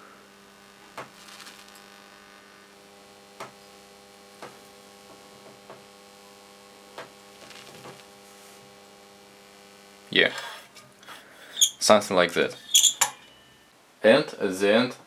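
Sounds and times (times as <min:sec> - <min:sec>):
electrical hum of torch discharge: 0:00.0 - 0:10.9
faint crackles and pops: 0:00.0 - 0:11.7.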